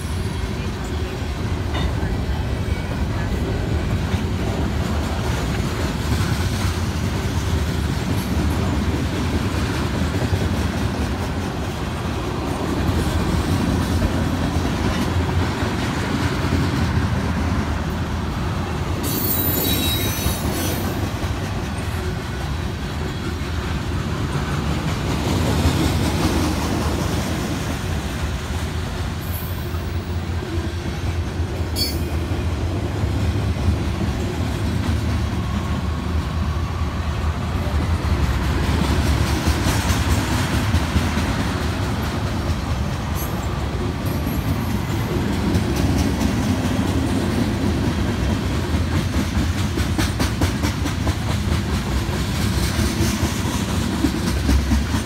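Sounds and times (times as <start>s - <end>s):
freight train rumbling past: 0.0s - 55.0s
high wheel screech: 19.0s - 20.9s.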